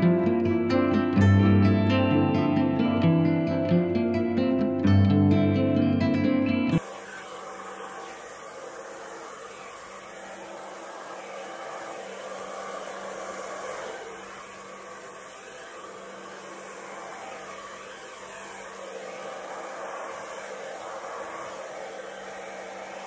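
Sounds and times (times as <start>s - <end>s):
hair dryer blowing air: 0.0s - 0.7s, 6.8s - 23.0s.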